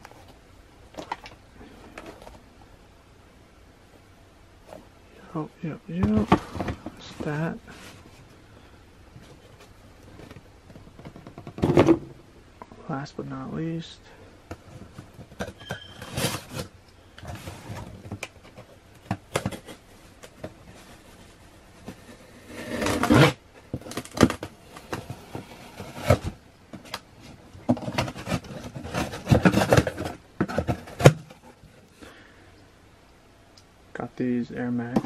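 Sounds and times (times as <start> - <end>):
box cutter cutting cardboard: 22.2 - 23.4.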